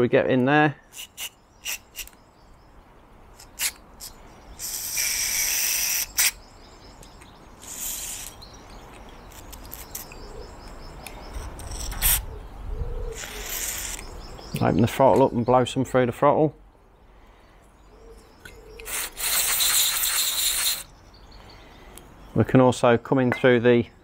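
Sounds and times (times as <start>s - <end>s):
aerosol spray hissing: 7.6s - 8.4s, 18.9s - 20.9s.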